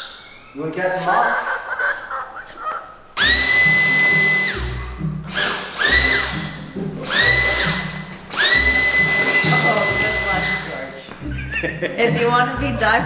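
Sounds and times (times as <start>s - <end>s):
stick vacuum whining: 3.2s - 11.0s.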